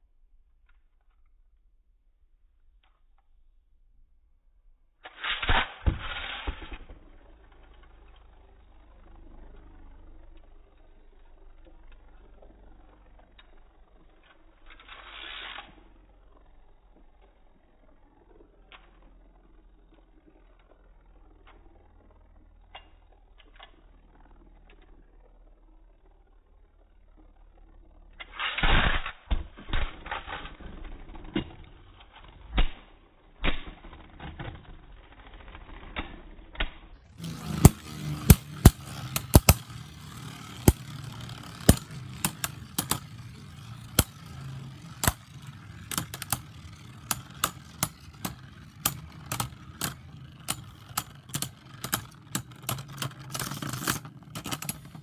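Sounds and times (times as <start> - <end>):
spinning whir: 5.0 - 55.0
spinning tops clattering: 37.1 - 55.0.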